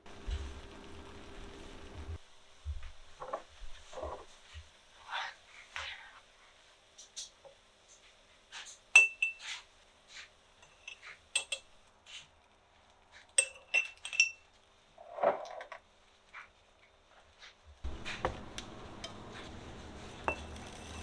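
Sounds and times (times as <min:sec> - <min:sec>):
utensils clinking on glass jars: 0:13.4 - 0:14.4
utensil scraping: 0:17.4 - 0:21.0.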